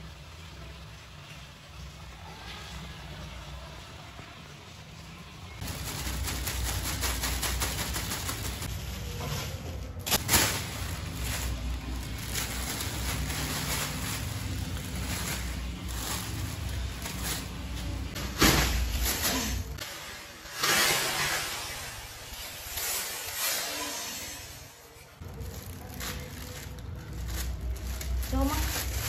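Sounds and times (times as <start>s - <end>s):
plastic bag crinkling: 5.6s - 9.1s, 9.9s - 19.8s, 25.2s - 29.0s.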